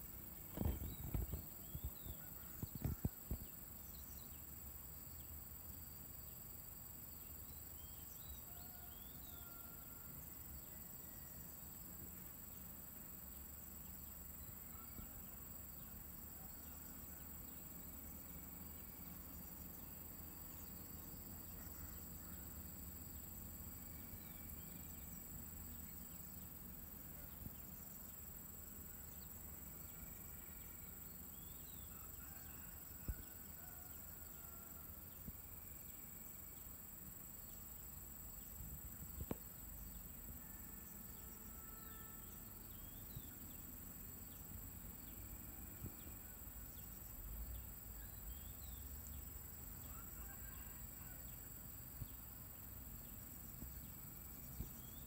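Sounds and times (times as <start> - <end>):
high insect drone: 0.0 - 55.0
distant bird chirps: 0.4 - 4.2.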